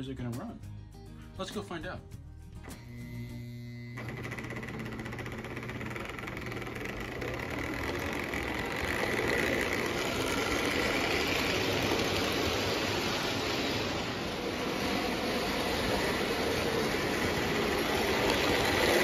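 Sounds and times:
toy train motor whirring: 2.8s - 19.0s
wheels rumbling over rails: 4.0s - 19.0s.

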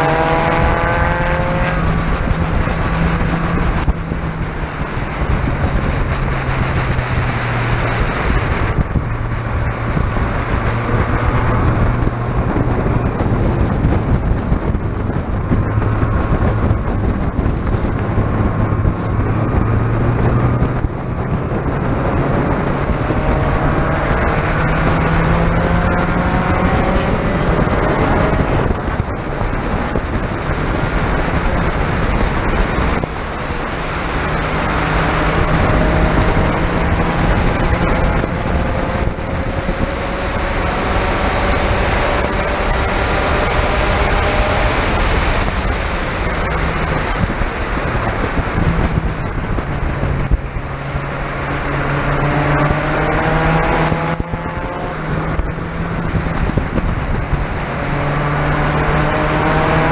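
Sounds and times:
car engine accelerating: 0.0s - 59.9s
wind noise: 0.0s - 59.9s.

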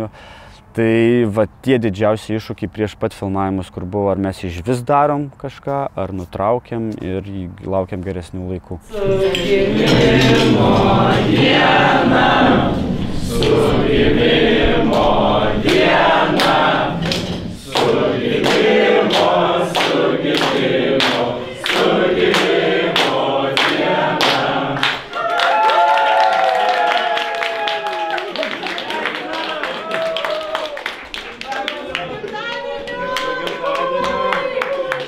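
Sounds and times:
group of people singing: 8.9s - 25.1s, 31.9s - 35.0s
clapping in time: 16.4s - 35.0s.

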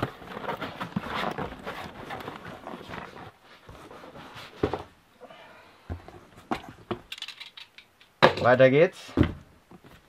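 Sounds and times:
cardboard box rustling and scraping: 0.0s - 5.0s.

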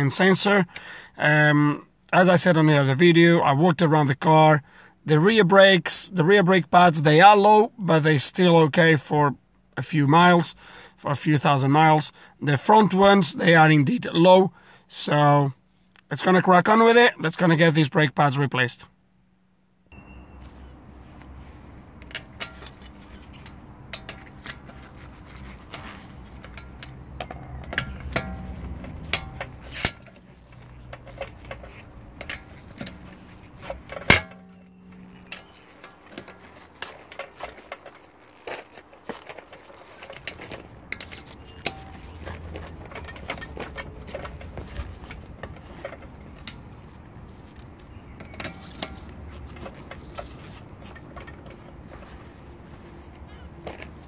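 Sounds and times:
metallic clicks and clinks of tools: 22.0s - 46.8s.

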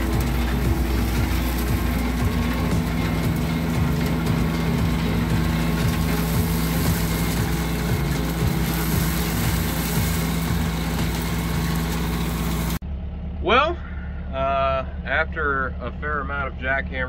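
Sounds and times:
vacuum truck droning: 0.0s - 16.9s.

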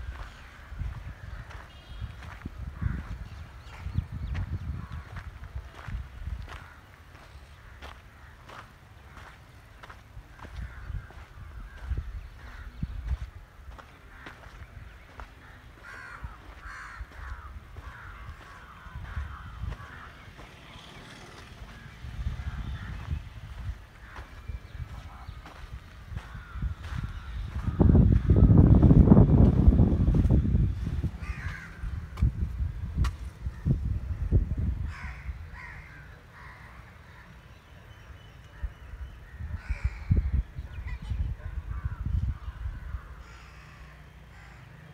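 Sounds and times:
crows cawing: 0.1s - 3.8s, 4.6s - 28.6s, 31.2s - 32.3s, 34.8s - 37.4s, 38.9s - 40.4s, 41.6s - 44.9s
low rumbling microphone bumps: 24.8s - 35.2s.

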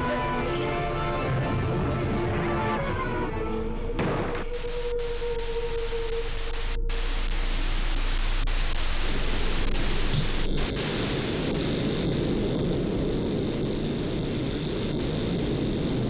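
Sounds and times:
low hum: 4.6s - 16.0s
rough low noise: 4.6s - 16.0s
television static hiss: 4.6s - 16.0s.

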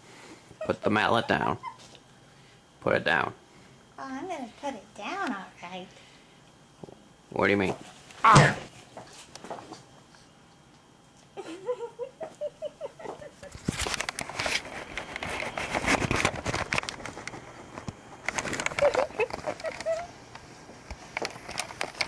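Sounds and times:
rustling and handling noise: 7.6s - 11.4s, 13.0s - 22.0s
wavering vocal cries: 18.7s - 20.2s.

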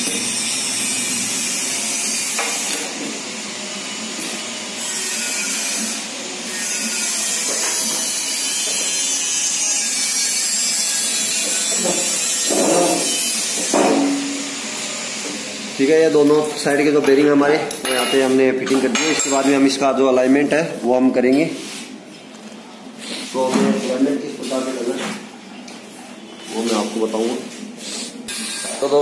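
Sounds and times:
machine hiss: 27.8s - 29.0s.

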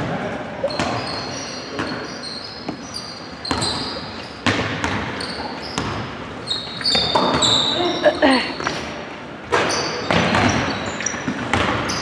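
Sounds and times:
sneaker squeaks: 0.6s - 12.0s
basketball bouncing on wooden floor: 3.4s - 6.1s, 6.8s - 7.7s, 9.5s - 12.0s.

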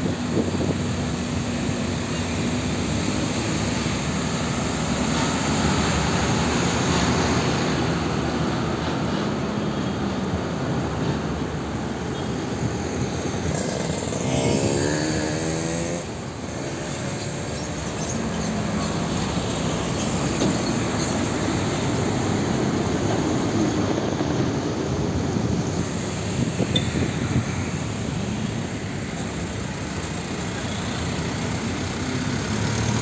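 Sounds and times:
heavy diesel trucks passing: 0.0s - 33.0s
tyre and road noise: 0.0s - 33.0s
engine revving: 13.0s - 17.4s.

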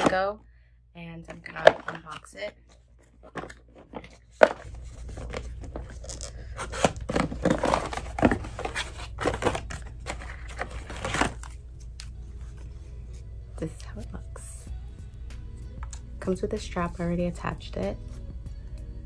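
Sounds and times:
packaging tearing and crinkling: 4.6s - 11.6s.

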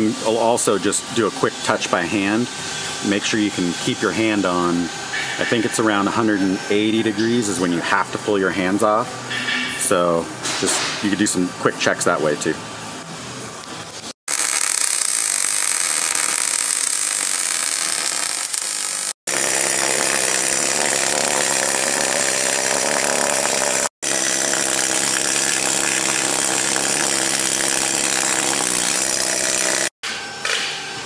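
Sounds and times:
arc welding crackling: 14.0s - 29.9s
pneumatic tool chattering on metal: 14.3s - 30.6s.

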